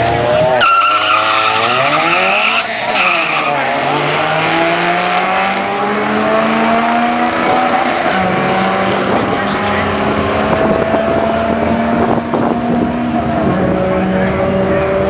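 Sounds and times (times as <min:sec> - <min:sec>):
car engine revving: 0:00.0 - 0:15.0
tyres squealing in wheelspin: 0:00.6 - 0:03.9.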